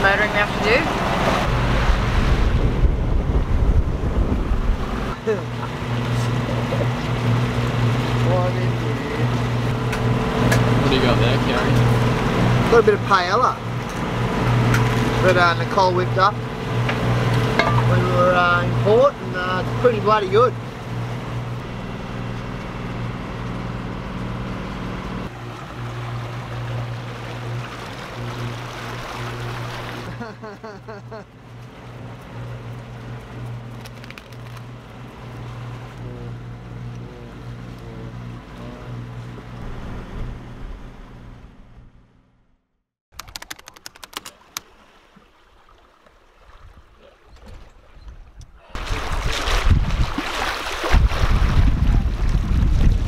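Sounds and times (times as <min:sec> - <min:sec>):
water rushing past hull: 0:00.0 - 0:23.0, 0:25.2 - 0:30.2, 0:43.9 - 0:53.0
diesel engine humming: 0:00.0 - 0:42.5
sharp clicks: 0:43.1 - 0:44.7.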